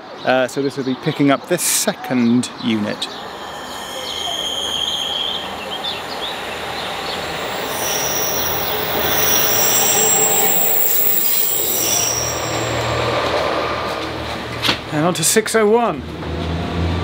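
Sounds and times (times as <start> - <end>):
train wheels squealing: 2.6 - 15.2
train rumble: 2.8 - 15.4.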